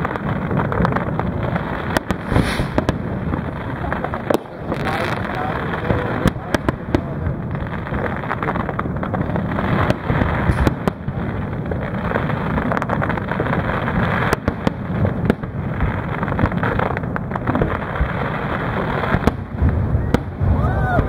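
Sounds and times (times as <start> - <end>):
firework shells bursting: 1.9 - 5.2, 9.8 - 11.2.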